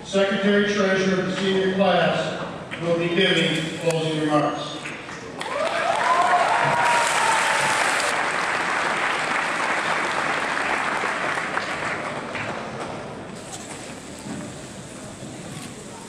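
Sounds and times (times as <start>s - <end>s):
audience applauding: 5.4s - 12.5s.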